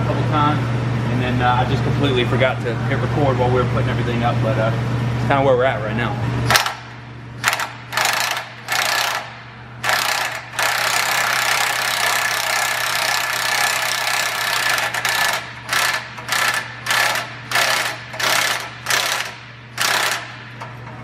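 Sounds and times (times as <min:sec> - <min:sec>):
cordless impact wrench bursts: 0:06.5 - 0:20.7.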